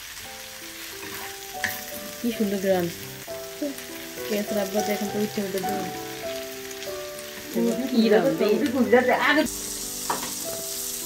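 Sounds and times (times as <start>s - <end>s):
background music: 0.0s - 11.0s
food sizzling in a frying pan: 0.0s - 11.0s
spatula stirring: 0.9s - 2.0s.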